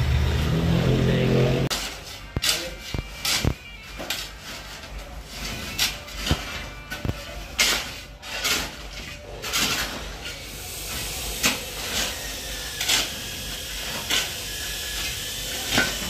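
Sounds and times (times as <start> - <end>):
shovel scraping gravelly soil: 4.2 - 16.0.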